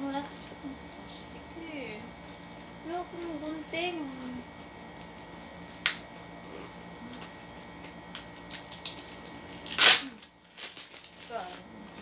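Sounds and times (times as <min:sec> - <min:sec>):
plastic tearing: 0:08.1 - 0:11.6.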